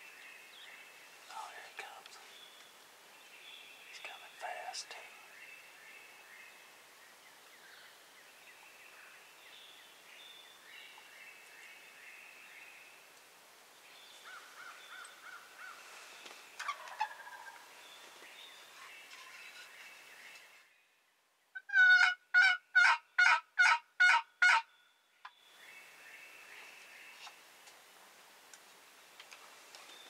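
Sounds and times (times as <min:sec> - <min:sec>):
songbirds chirping: 0:00.0 - 0:30.0
turkey gobbling: 0:16.6 - 0:17.6, 0:21.6 - 0:24.6.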